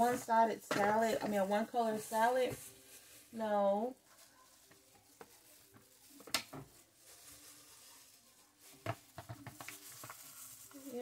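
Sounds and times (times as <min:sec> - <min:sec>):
soft taps on foil pan: 0:04.7 - 0:06.8, 0:08.7 - 0:10.4.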